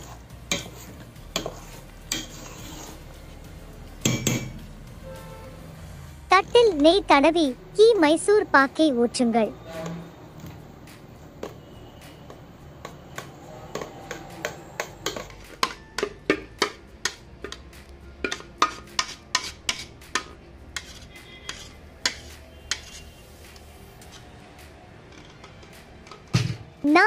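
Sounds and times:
metal spatula scraping steel pan: 0.0 - 3.3, 9.6 - 10.2, 18.2 - 23.4.

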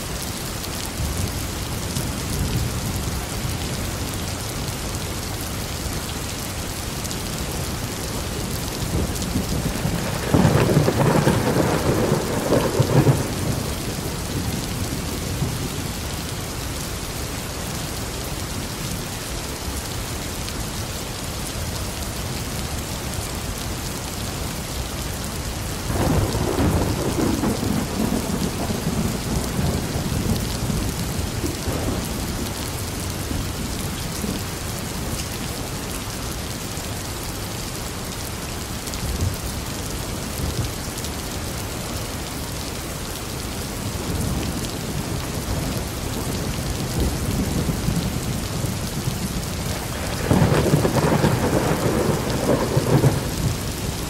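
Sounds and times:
steady rain falling: 0.0 - 54.0
thunder rumbling: 8.8 - 15.6, 25.9 - 32.6, 44.1 - 54.0.

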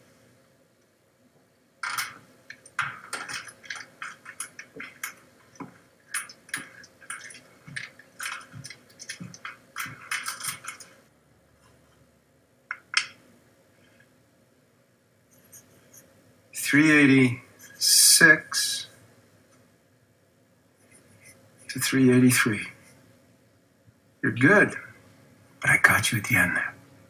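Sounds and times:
wooden tiles clicking and clattering: 1.8 - 11.1, 12.7 - 13.2.

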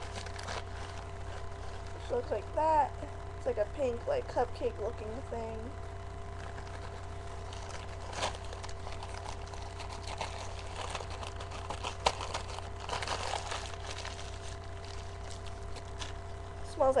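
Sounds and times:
shopping bag crinkling: 0.0 - 2.4, 6.3 - 16.5
low hum: 0.0 - 17.0.

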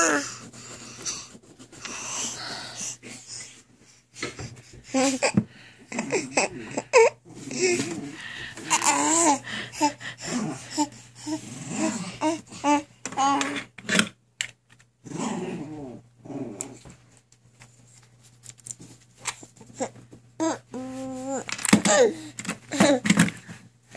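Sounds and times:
baby babbling: 0.0 - 0.3, 4.9 - 8.0, 8.6 - 10.0, 10.7 - 13.7, 19.7 - 23.0
baby laughing: 8.6 - 10.0.

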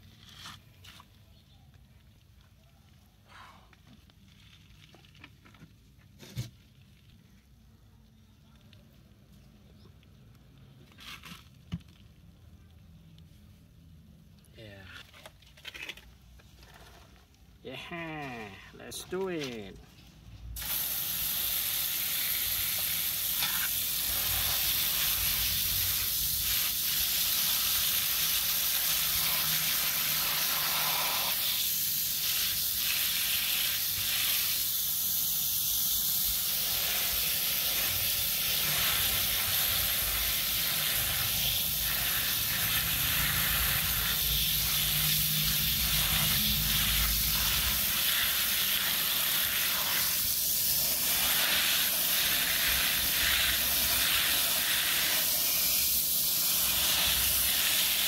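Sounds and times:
hose spraying water: 20.6 - 58.0.

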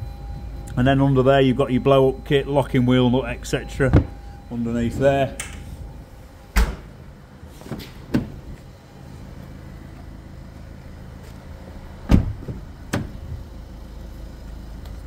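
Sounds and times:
steady low hum: 0.0 - 15.0
car doors thumping shut: 3.9 - 4.2, 6.5 - 7.0, 7.6 - 8.6, 12.0 - 13.4.

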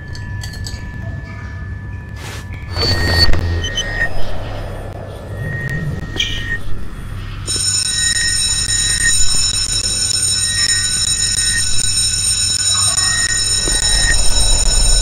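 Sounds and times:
electric alarm bell ringing: 7.2 - 15.0.

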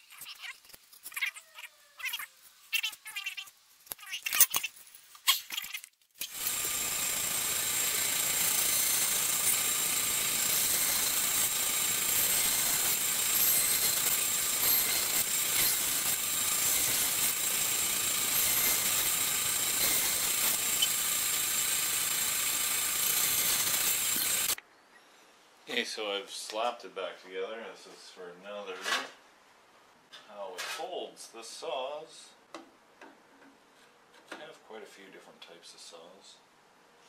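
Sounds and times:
bandsaw cutting wood: 6.2 - 24.6.

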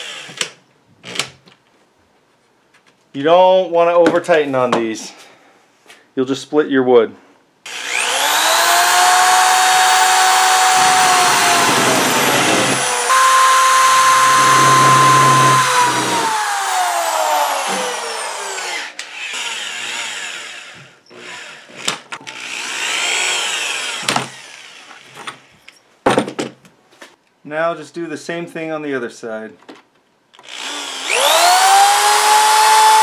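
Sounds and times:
electric drill drilling: 7.7 - 25.0, 30.4 - 33.0.

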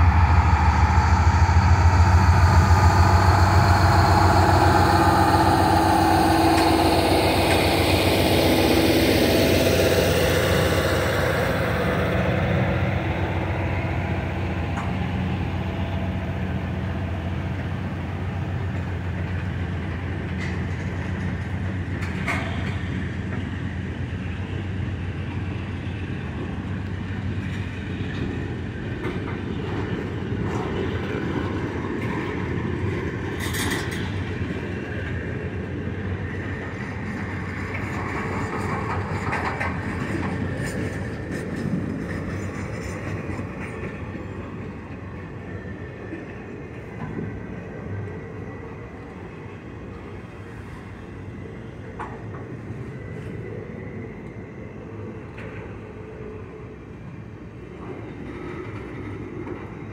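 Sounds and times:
low steady drone: 0.0 - 29.1
train wheels rumbling and clicking: 0.0 - 59.9.

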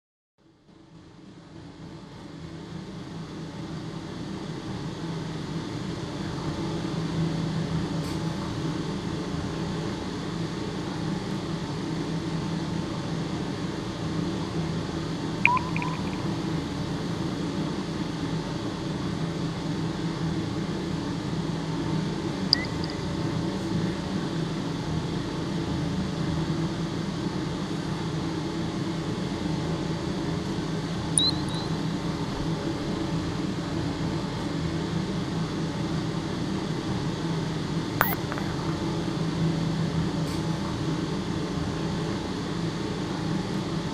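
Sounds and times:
high-pitched blips: 15.5 - 16.6, 22.6 - 23.2, 31.2 - 31.7, 38.0 - 38.8.

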